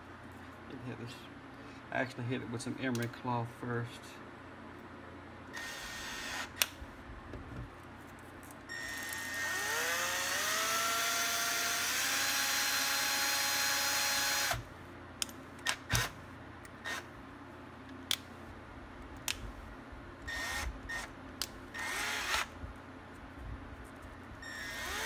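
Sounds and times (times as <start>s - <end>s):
cordless drill motor whine: 5.5s - 6.6s, 8.7s - 14.7s, 20.3s - 21.1s, 21.7s - 22.5s, 24.4s - 25.0s.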